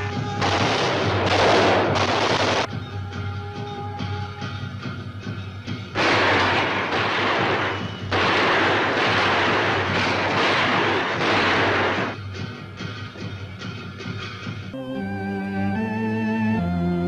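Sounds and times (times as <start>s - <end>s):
dense gunfire: 0.4s - 2.7s, 6.0s - 12.2s.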